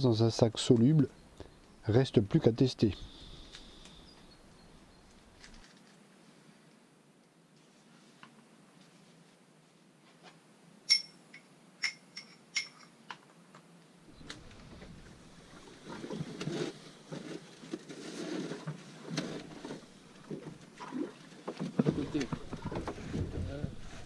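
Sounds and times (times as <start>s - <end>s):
low rumbling handling noise: 14.1s - 24.0s.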